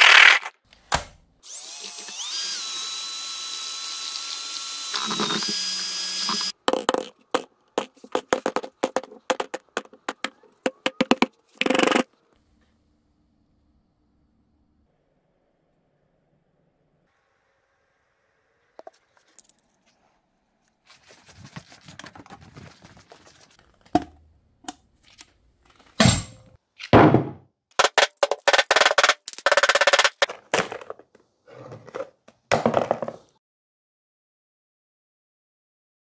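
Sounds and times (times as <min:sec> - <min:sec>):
golf balls clattering in plastic bucket: 0:06.6 - 0:12.0.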